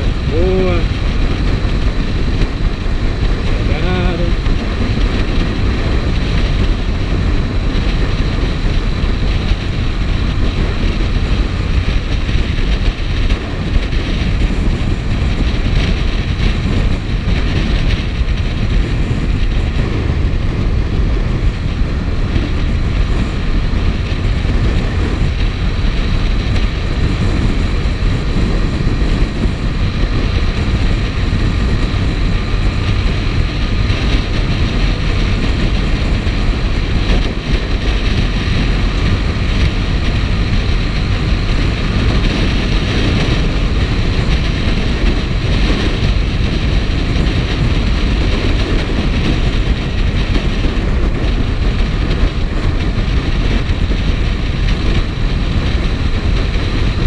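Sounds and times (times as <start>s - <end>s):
motorcycle engine cruising: 0.0s - 57.0s
wind buffeting microphone: 0.0s - 57.0s.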